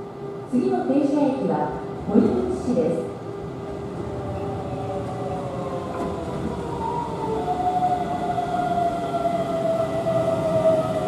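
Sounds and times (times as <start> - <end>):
wheels rumbling on rail: 1.8 - 11.0.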